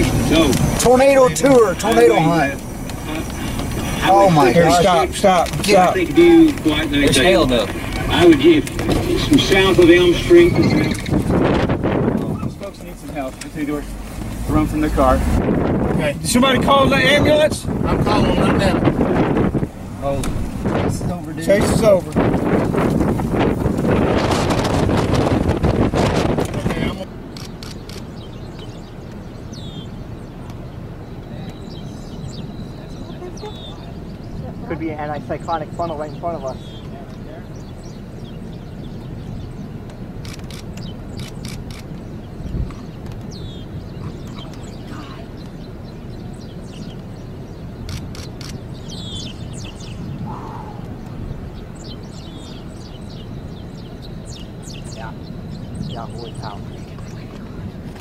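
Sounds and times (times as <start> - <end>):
small birds chirping: 0.0 - 58.0
wind rumble on microphone: 0.0 - 58.0
sharp clicks: 27.4 - 29.2, 39.8 - 43.4, 47.8 - 48.7.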